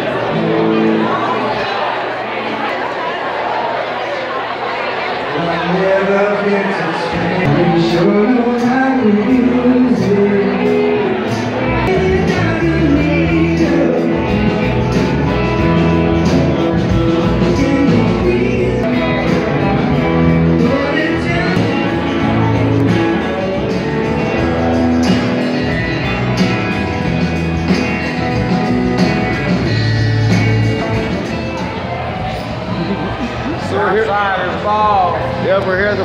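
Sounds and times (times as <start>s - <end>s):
electric and acoustic guitars: 0.0s - 2.7s, 5.2s - 36.0s
drum kit beat: 8.6s - 31.7s.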